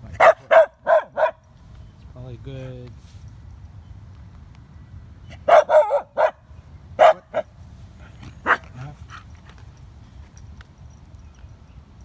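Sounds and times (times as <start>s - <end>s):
dog barking: 0.2s - 1.4s, 5.4s - 6.4s, 7.0s - 7.5s, 8.4s - 8.8s.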